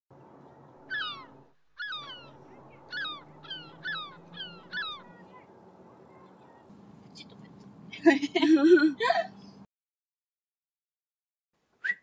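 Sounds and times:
low steady hum: 0:00.1 - 0:09.7
crow cawing: 0:00.9 - 0:05.2.

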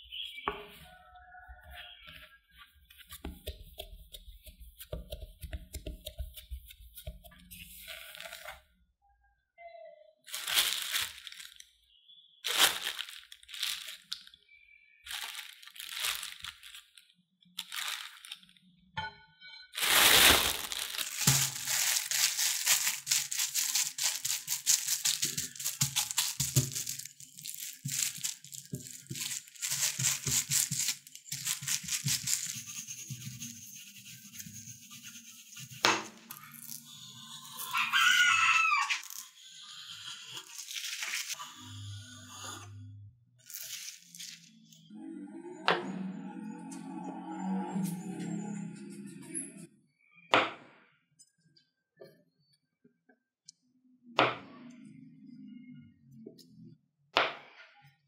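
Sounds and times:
rolling pin on wooden board: 0:03.2 - 0:07.5
plastic bag crinkling: 0:10.3 - 0:11.7, 0:12.4 - 0:14.4, 0:15.1 - 0:18.6, 0:19.8 - 0:32.6, 0:40.5 - 0:41.4, 0:43.5 - 0:44.6.

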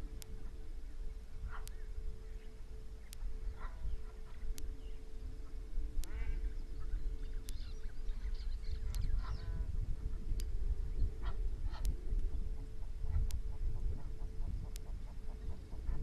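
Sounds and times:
geese honking calls: 0:00.0 - 0:10.3, 0:11.2 - 0:16.0
low steady rumble: 0:00.0 - 0:16.0
faint click: 0:01.5 - 0:01.8, 0:06.0 - 0:06.4, 0:07.4 - 0:07.7, 0:08.8 - 0:09.3, 0:10.3 - 0:10.6.

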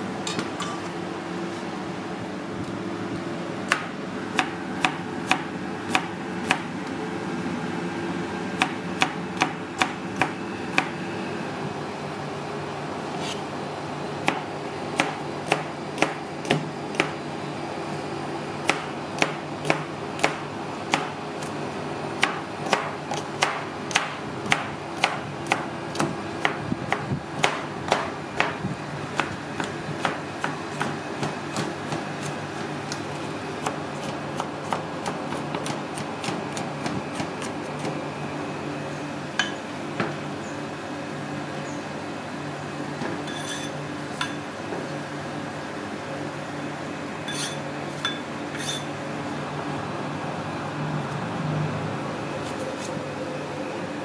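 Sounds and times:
steady hum: 0:00.0 - 0:54.0
knife chopping on cutting board: 0:03.7 - 0:06.6, 0:33.6 - 0:38.0.

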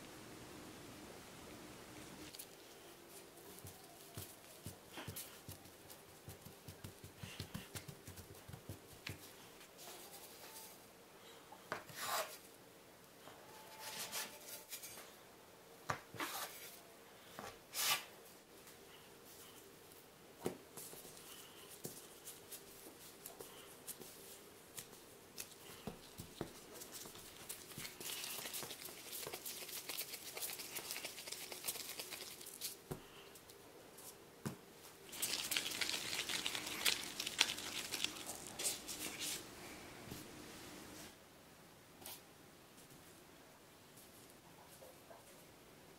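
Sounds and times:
plastic gloves crinkling: 0:22.1 - 0:32.8, 0:35.0 - 0:41.2.

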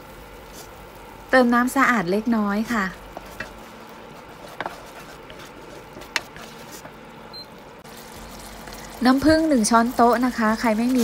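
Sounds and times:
wooden spatula stirring sauce: 0:02.6 - 0:07.0, 0:09.2 - 0:11.0.

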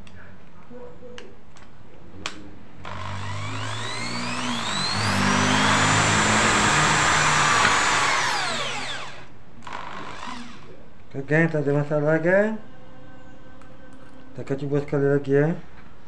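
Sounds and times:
drill motor whine: 0:02.9 - 0:10.7.

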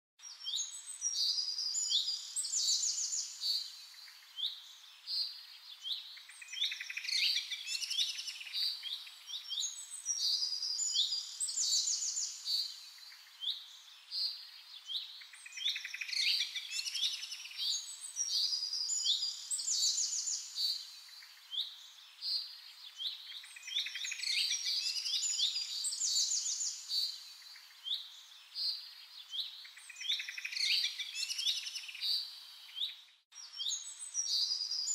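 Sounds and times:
songbirds singing and chirping: 0:00.2 - 0:34.9.

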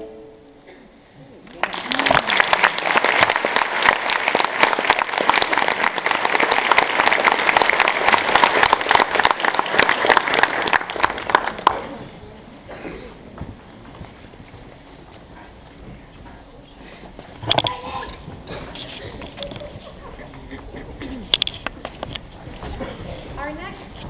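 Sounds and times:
audience applauding: 0:01.5 - 0:12.1.

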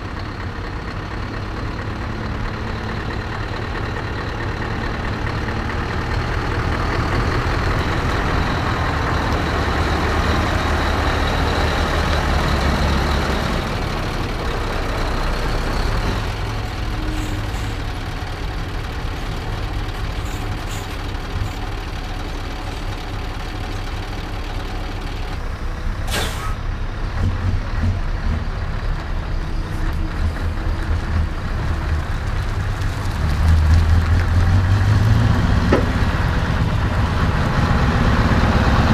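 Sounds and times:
heavy trucks rumbling past: 0:00.0 - 0:38.9
air-brake hiss: 0:20.2 - 0:21.6, 0:26.0 - 0:26.6.

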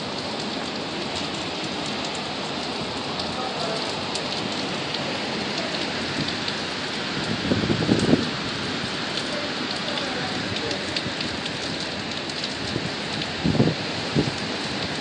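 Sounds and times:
heavy rain: 0:00.0 - 0:15.0
hurricane wind gusts: 0:00.0 - 0:15.0.

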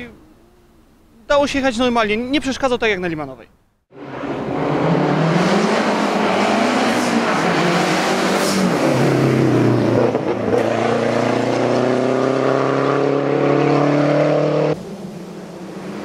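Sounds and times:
rally car engine at full throttle: 0:03.9 - 0:16.0.

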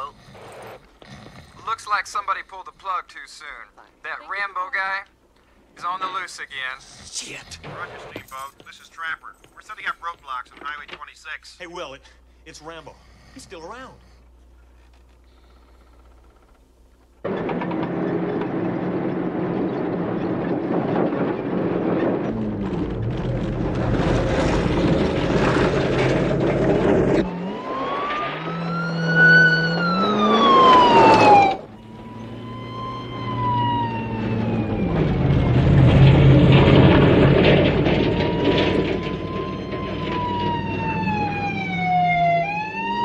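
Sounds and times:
truck engine running hard: 0:17.3 - 0:43.0
police siren wailing: 0:27.1 - 0:35.9, 0:37.8 - 0:43.0.

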